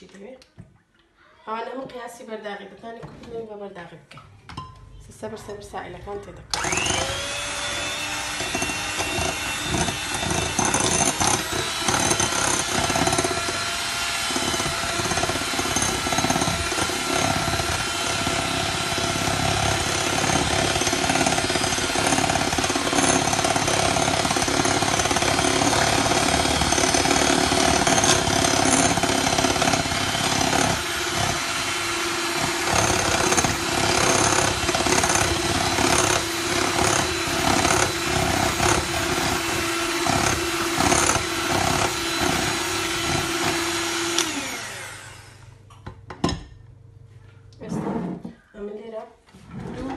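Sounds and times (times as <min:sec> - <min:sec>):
electric mixer motor running: 0:06.5 - 0:45.5.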